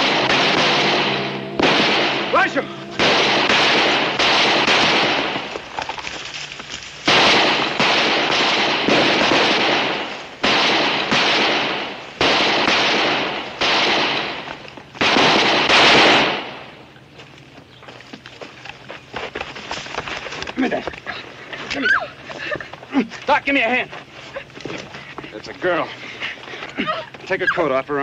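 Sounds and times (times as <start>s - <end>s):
echoing gunshots: 0.0s - 5.7s, 7.0s - 16.8s.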